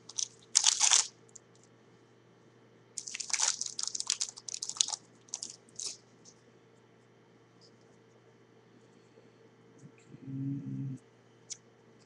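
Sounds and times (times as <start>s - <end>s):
wrapper crinkling and tearing: 0.0s - 1.1s, 3.0s - 6.0s.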